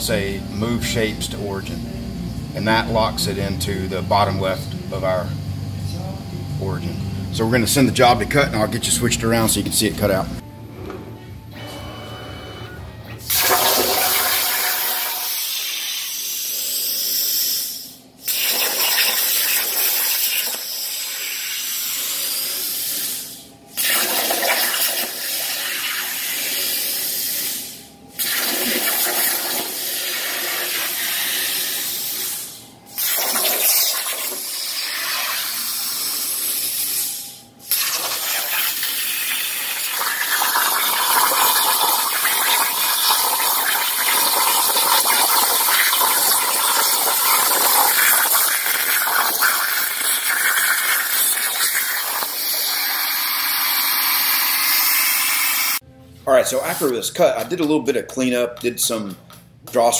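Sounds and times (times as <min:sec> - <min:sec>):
plasma torch arc hissing: 0:13.3 - 0:55.8.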